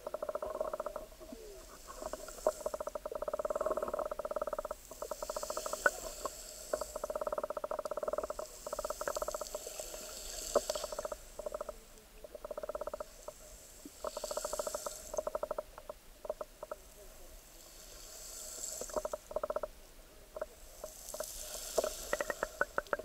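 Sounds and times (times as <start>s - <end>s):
underwater clicking and crackling: 0.0s - 1.1s, 1.9s - 13.4s, 21.1s - 23.0s
water hiss: 0.2s - 11.7s, 12.4s - 19.7s, 20.3s - 23.0s.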